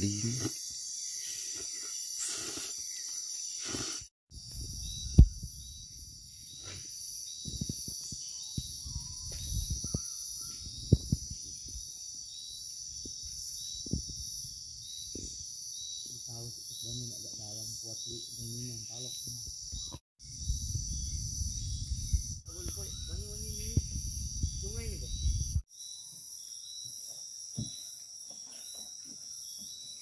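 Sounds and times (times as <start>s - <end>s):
crickets chirping: 0.0s - 30.0s
man slurping noodles: 1.4s - 3.0s, 3.6s - 4.1s.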